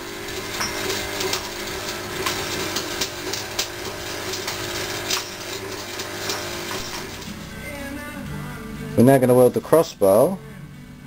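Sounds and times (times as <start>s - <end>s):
arc welder crackling: 0.0s - 10.1s
sharp welding pops: 0.3s - 7.6s
low hum: 6.7s - 9.6s.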